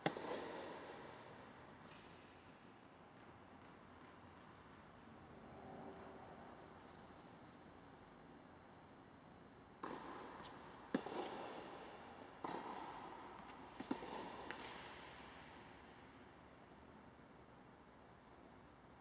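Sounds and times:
tennis ball bouncing: 0.0 - 1.1, 9.8 - 15.6
tennis racket striking ball: 0.0 - 1.1, 9.8 - 15.5.

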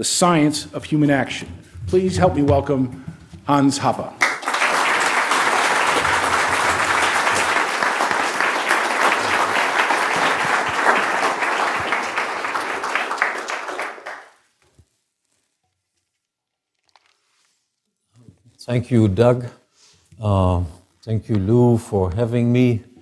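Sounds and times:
audience applauding: 4.2 - 14.4.

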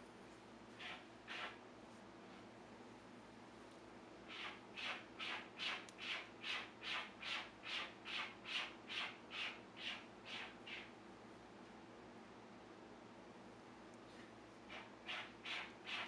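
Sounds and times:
quick scratching strokes: 0.8 - 1.6, 4.3 - 10.9, 14.7 - 16.0.

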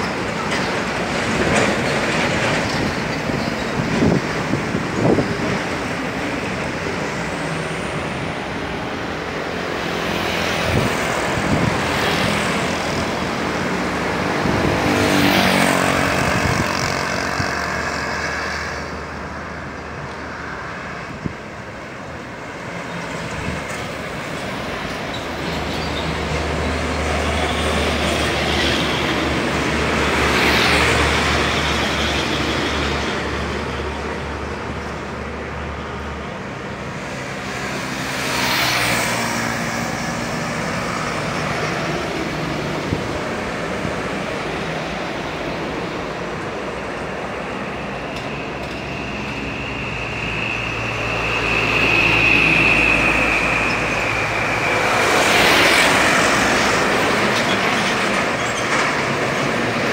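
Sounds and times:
highway traffic passing: 0.0 - 59.9
motorcycles passing: 9.9 - 19.1.

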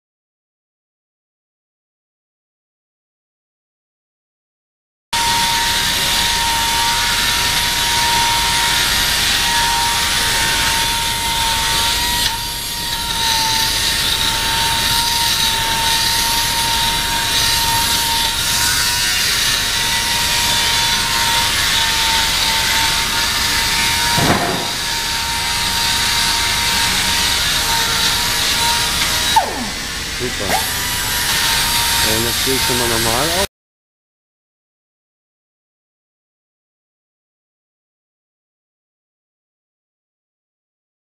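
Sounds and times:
pneumatic grinder grinding metal: 5.2 - 33.5.

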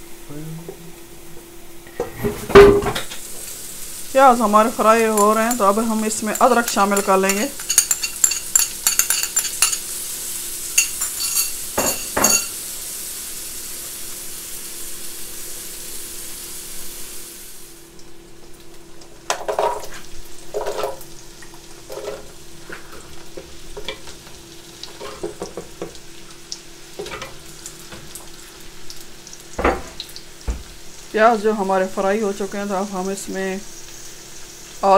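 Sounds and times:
onions sizzling in butter: 1.0 - 34.9
wooden spoon scraping pot: 4.9 - 9.8.

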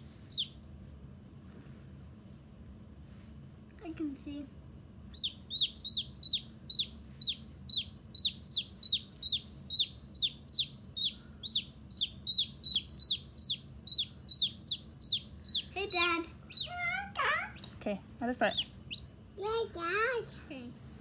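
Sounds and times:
baby chick peeping: 0.1 - 0.6, 5.1 - 17.8, 18.4 - 19.2.

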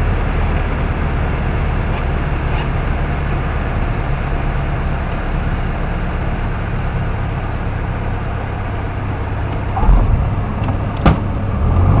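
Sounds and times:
airflow noise: 9.5 - 11.5
low thump: 9.7 - 11.4.

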